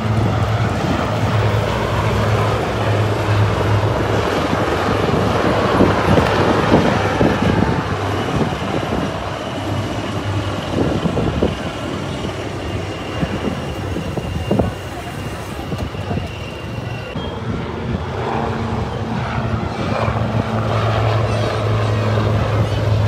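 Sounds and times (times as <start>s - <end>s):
helicopters flying overhead: 0.0s - 23.0s.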